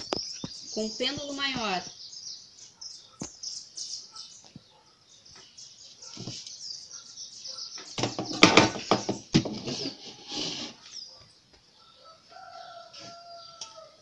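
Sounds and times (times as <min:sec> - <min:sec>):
small birds chirping: 0:00.0 - 0:14.0
cans and bottle clattering on table: 0:08.0 - 0:10.0.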